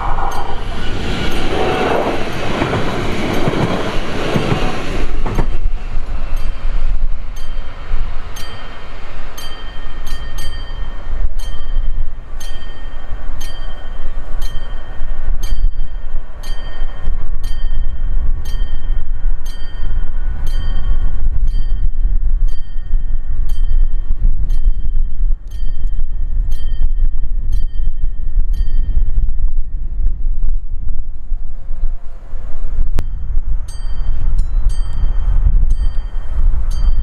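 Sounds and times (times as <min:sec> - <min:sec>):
train rumble: 0:00.0 - 0:37.0
sharp metallic dings: 0:07.3 - 0:29.2.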